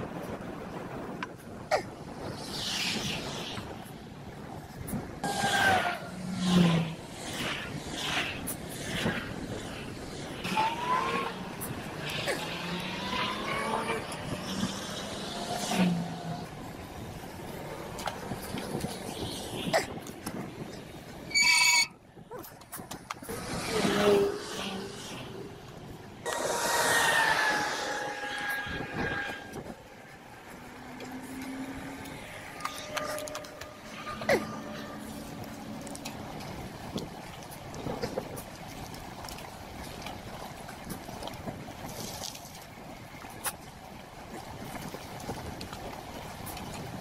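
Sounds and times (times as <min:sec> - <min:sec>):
engine hum with tyre noise: 0:00.0 - 0:21.4, 0:22.4 - 0:47.0
car traffic passing: 0:10.1 - 0:18.8, 0:23.2 - 0:36.9
rising higher whines: 0:26.2 - 0:36.6
bicycle rolling noise: 0:26.9 - 0:47.0.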